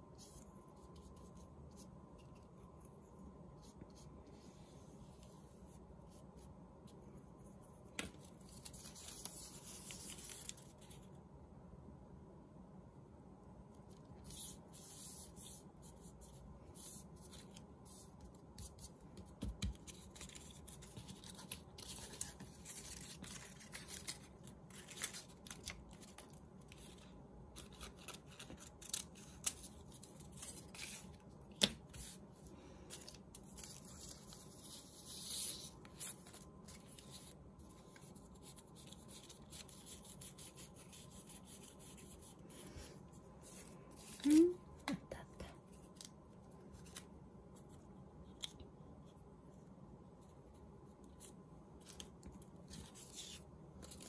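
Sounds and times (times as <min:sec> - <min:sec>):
paper rustling and rubbing: 0:03.6 - 0:11.1, 0:14.2 - 0:44.4
scissors snipping paper: 0:27.6 - 0:31.0.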